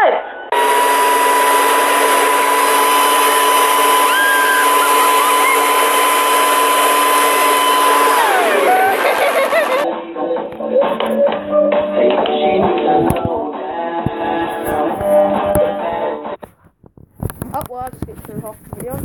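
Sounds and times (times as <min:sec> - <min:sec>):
leaf blower running: 0:00.5 - 0:09.8.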